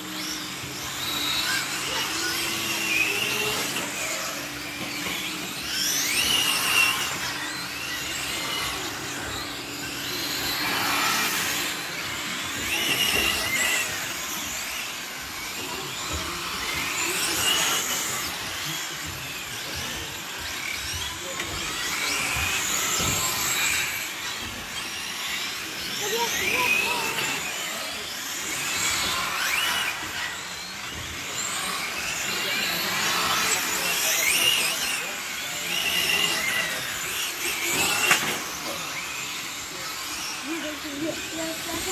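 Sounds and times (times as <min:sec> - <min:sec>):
electric toy car motors whining: 0:00.0 - 0:41.9.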